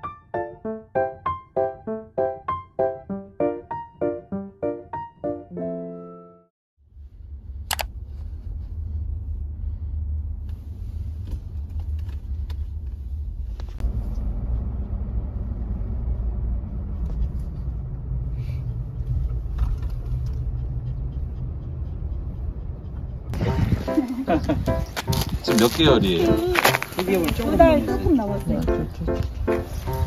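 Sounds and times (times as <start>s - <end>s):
car road noise rumble: 6.8s - 30.0s.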